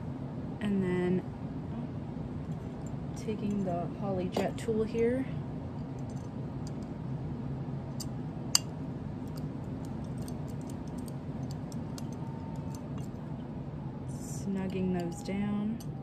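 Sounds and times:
steady low hum: 0:00.0 - 0:16.0
light metal ticks and clicks: 0:09.3 - 0:13.2.

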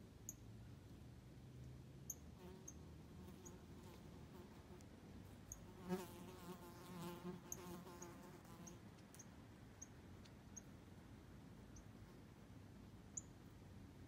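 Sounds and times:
faint high chirps: 0:13.1 - 0:13.4.

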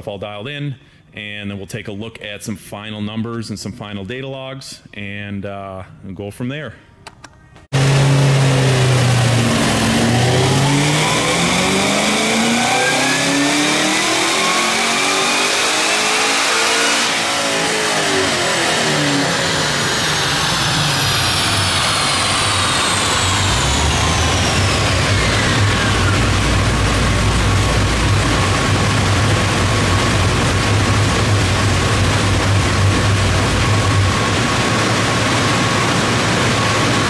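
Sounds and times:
car engine revving: 0:07.7 - 0:37.0
dyno rollers winding down: 0:07.7 - 0:37.0
supercharger whine: 0:07.7 - 0:37.0.

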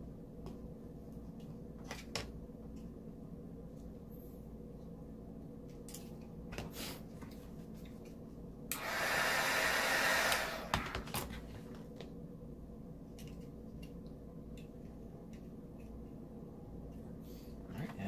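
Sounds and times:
heat gun blowing hot air: 0:08.7 - 0:11.1.

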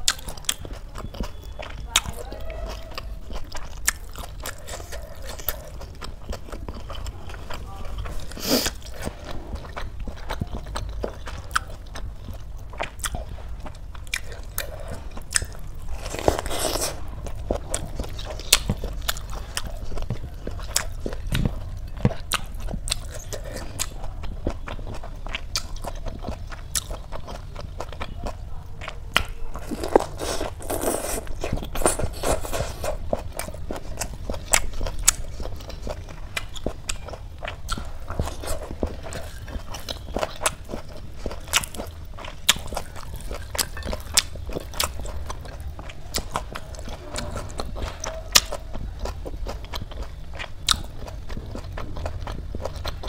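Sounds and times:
wet chewing: 0:00.0 - 0:53.0
crunchy bites: 0:28.8 - 0:53.0.

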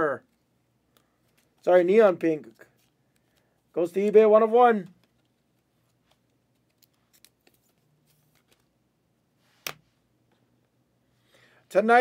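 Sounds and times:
plastic card sleeve clicks and scrapes: 0:00.3 - 0:01.6, 0:04.9 - 0:08.7.

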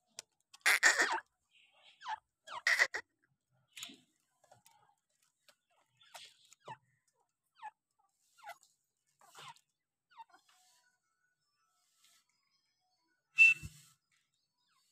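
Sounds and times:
soft bird chirps: 0:03.6 - 0:14.9.

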